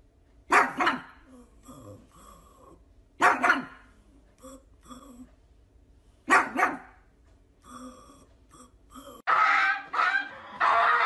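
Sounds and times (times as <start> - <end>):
dog barking: 0.5 - 1.2, 3.2 - 3.9, 6.3 - 7.0.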